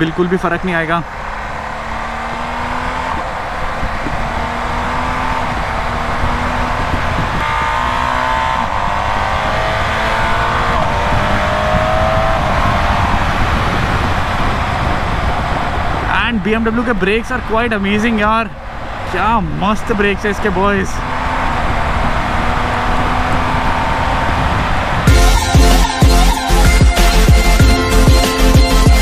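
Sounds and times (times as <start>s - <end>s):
wind and road noise: 0.0s - 29.0s
motorcycle engine accelerating: 1.0s - 16.1s, 21.0s - 29.0s.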